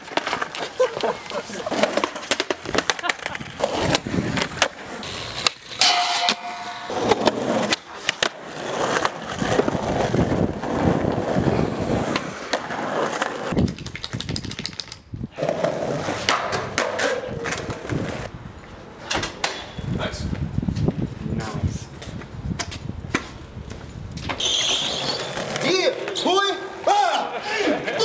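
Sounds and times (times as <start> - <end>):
skateboard wheels rolling on asphalt: 0.0 - 5.8, 6.9 - 19.1, 19.8 - 28.0
skateboard scraping along rail: 0.0 - 5.9, 6.6 - 13.6, 15.4 - 18.3, 24.3 - 26.8
skateboard clacks on ground: 0.0 - 10.3, 12.1 - 18.3.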